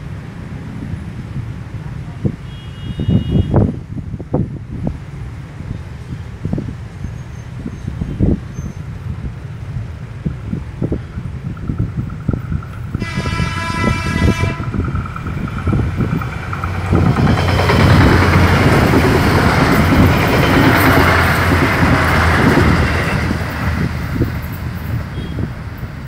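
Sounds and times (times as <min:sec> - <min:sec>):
train rumbling on rails: 0:00.0 - 0:26.0
train horn blast: 0:02.5 - 0:03.6, 0:13.0 - 0:14.9, 0:25.1 - 0:25.5.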